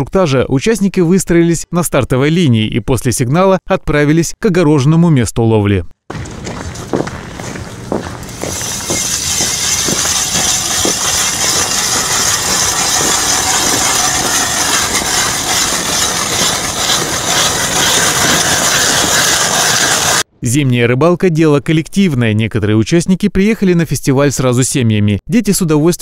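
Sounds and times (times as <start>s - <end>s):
ice auger grinding ice: 6.3s - 20.3s
regular ticks: 8.1s - 20.2s.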